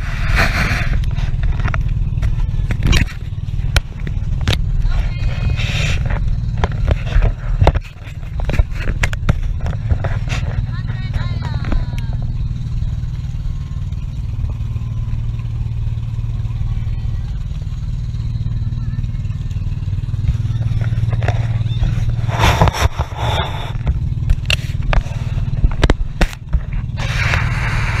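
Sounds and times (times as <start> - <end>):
boat engine droning: 0.0 - 28.0
wind rushing over microphone: 20.3 - 28.0.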